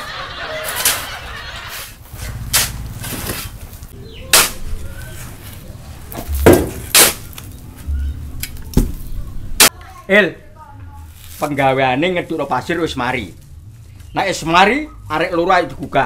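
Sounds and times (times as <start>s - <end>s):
shovel scraping and thudding in sand: 0.6s - 7.4s.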